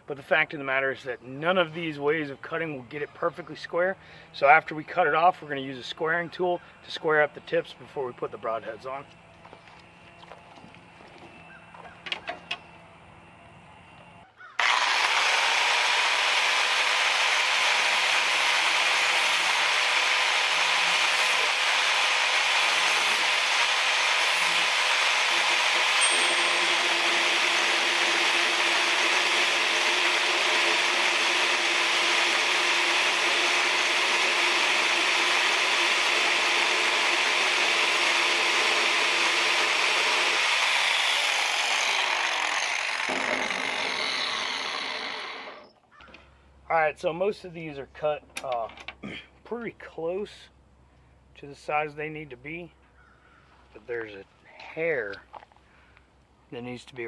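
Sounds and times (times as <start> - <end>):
angle grinder cutting: 14.6 - 45.7.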